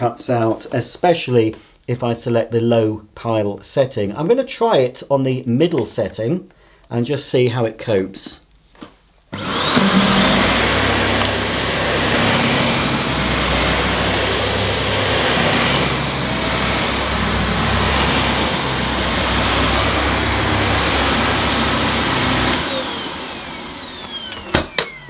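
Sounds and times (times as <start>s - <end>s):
vacuum cleaner running on carpet: 9.4s - 25.0s.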